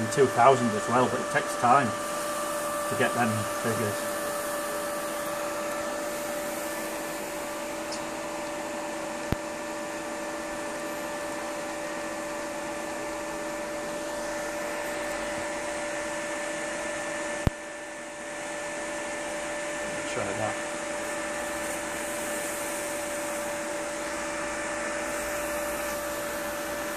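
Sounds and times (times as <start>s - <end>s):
steady tones: 0.0s - 8.3s
cooling fans whooshing: 0.0s - 26.9s.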